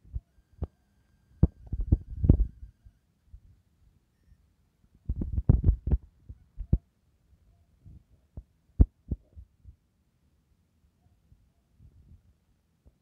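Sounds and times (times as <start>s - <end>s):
dull low thumps: 1.4s - 2.6s, 5.1s - 6.8s.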